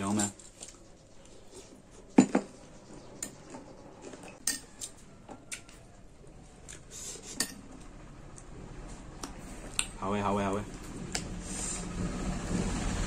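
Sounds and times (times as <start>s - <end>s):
metal spoon clinking glass bowl: 4.4s - 4.9s.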